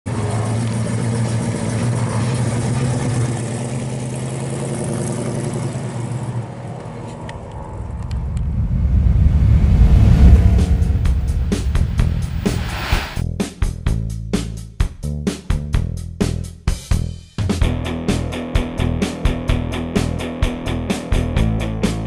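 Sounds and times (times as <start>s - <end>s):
car engine driving off: 0.1s - 13.2s
rising low whoosh with ticks: 6.6s - 13.2s.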